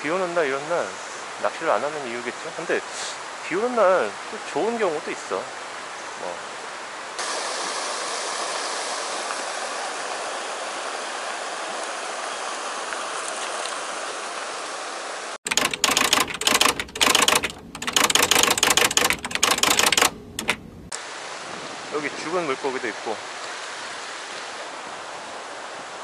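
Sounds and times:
mountain stream rushing: 0:00.0 - 0:15.4, 0:20.9 - 0:26.0
rain falling: 0:00.4 - 0:21.9, 0:22.5 - 0:26.0.

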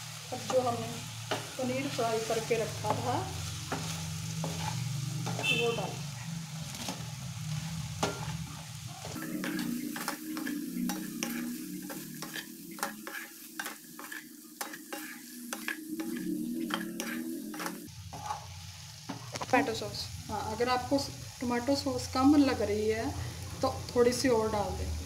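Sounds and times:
frying sizzle: 0:00.0 - 0:25.0
wooden spatula scraping a pan: 0:01.3 - 0:06.0, 0:06.6 - 0:19.7.

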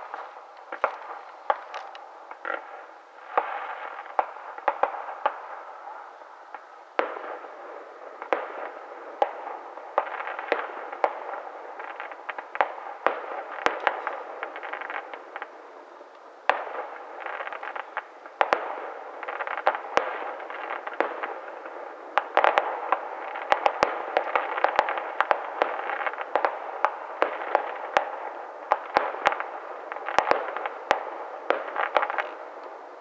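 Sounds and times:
fireworks bangs: 0:00.0 - 0:15.6, 0:16.4 - 0:33.0
fireworks crackling: 0:00.0 - 0:33.0.

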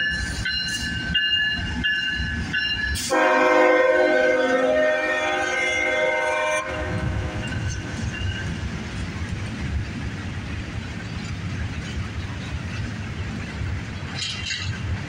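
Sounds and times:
train wheels rumbling on rail: 0:00.0 - 0:15.0
locomotive horn: 0:03.0 - 0:07.6.

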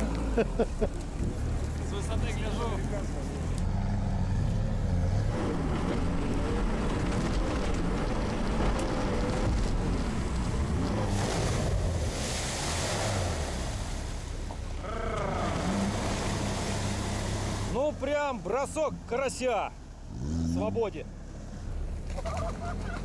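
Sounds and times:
tyres splashing through water: 0:05.4 - 0:20.1.

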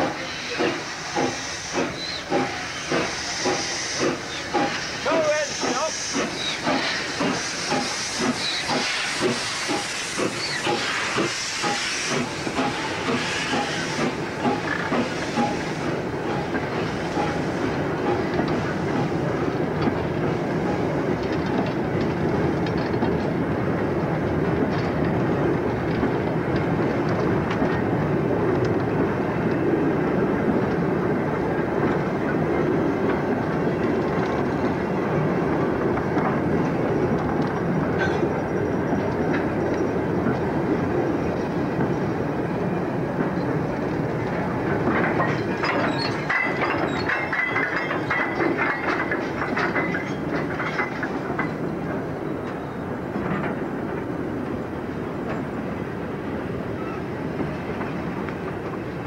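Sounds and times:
steam hissing: 0:00.0 - 0:21.2
wagons clattering over rail joints: 0:43.2 - 0:53.7.

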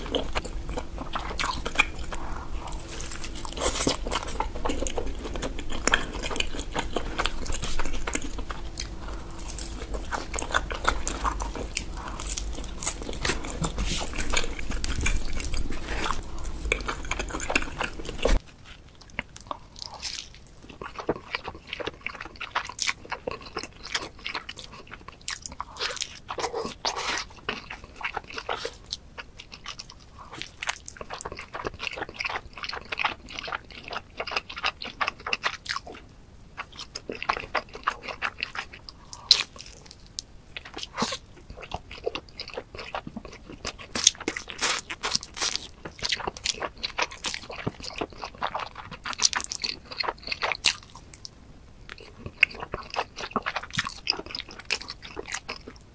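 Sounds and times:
crisp crunching: 0:00.0 - 0:23.5
wet chewing: 0:00.0 - 0:55.9.

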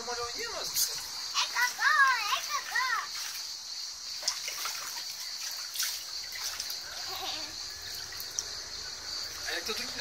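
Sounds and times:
small splashes: 0:00.8 - 0:10.0
water sloshing in a paddling pool: 0:00.9 - 0:08.5.

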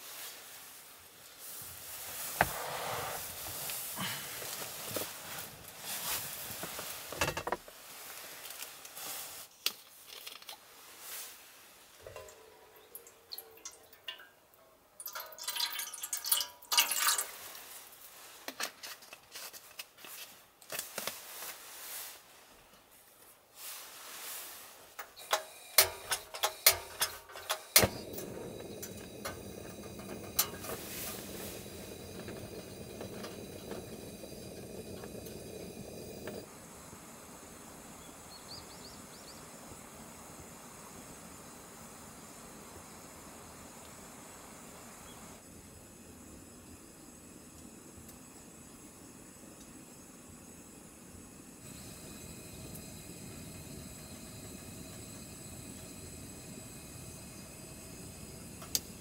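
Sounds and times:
gas burner hissing: 0:01.3 - 0:07.6, 0:23.7 - 0:59.0
water pouring into metal pot: 0:12.0 - 0:17.7, 0:25.8 - 0:36.5
gas stove igniter clicks: 0:25.2 - 0:36.4, 0:57.9 - 0:59.0.

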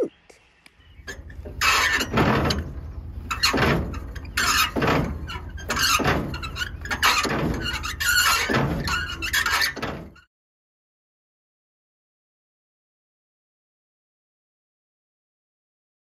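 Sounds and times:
metal crank squealing: 0:01.0 - 0:10.3.

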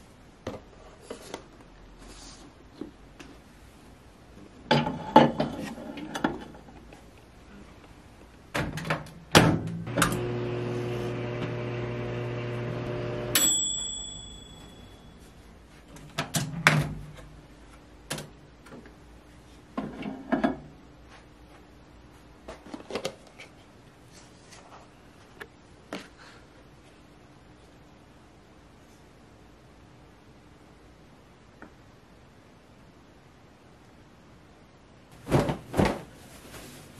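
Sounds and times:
microwave oven humming: 0:09.8 - 0:15.2
microwave ding: 0:13.0 - 0:15.3.

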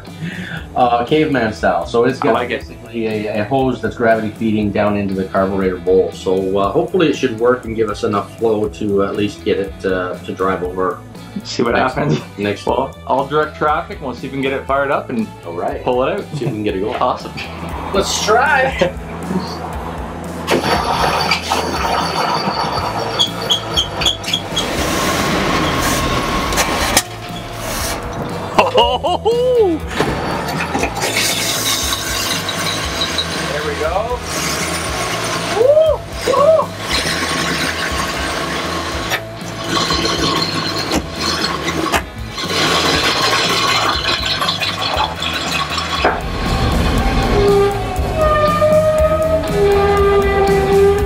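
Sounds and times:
rattly engine running: 0:17.6 - 0:28.6, 0:29.9 - 0:35.6, 0:36.8 - 0:48.4.

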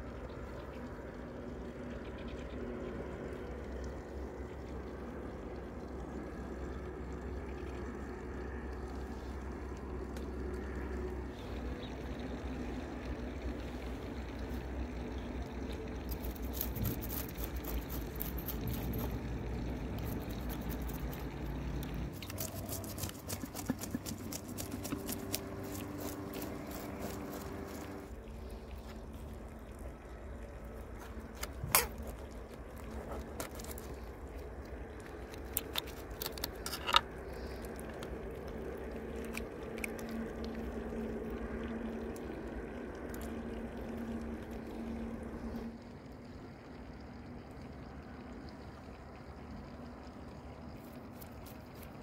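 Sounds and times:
low steady hum: 0:00.0 - 0:52.0
knife scraping fish scales: 0:16.1 - 0:19.2.

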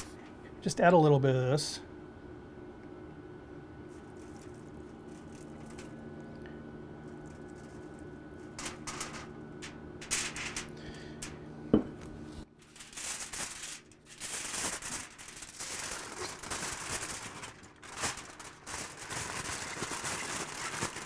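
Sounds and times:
steady low hum: 0:00.0 - 0:21.0
wrapping material crinkling: 0:03.9 - 0:06.0, 0:07.0 - 0:10.7, 0:12.6 - 0:21.0.

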